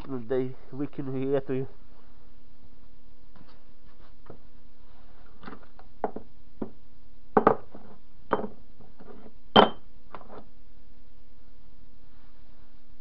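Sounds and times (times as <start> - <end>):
metal blocks knocking on wood: 7.4 - 7.7, 8.3 - 9.8.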